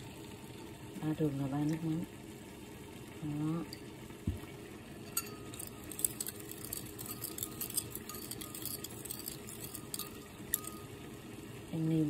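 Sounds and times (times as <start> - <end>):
spoon clicking against bowl: 5.1 - 10.9.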